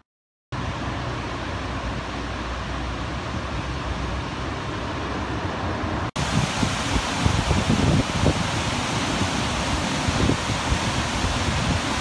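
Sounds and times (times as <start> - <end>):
outdoor rushing noise: 0.6 - 12.0
waterfall rushing: 6.2 - 12.0.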